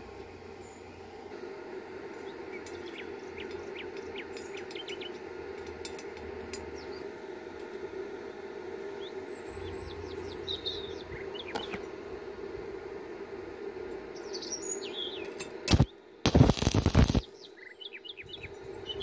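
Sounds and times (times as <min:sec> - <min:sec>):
steady low hum: 0:00.0 - 0:19.0
small birds chirping: 0:02.2 - 0:05.3, 0:06.6 - 0:07.1, 0:08.9 - 0:12.0, 0:13.8 - 0:16.1, 0:16.8 - 0:19.0.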